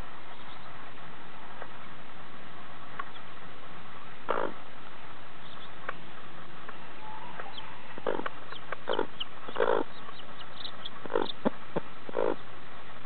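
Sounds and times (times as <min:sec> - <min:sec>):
hen clucking: 0:04.3 - 0:04.6, 0:06.7 - 0:12.4
chicks peeping: 0:05.4 - 0:12.5.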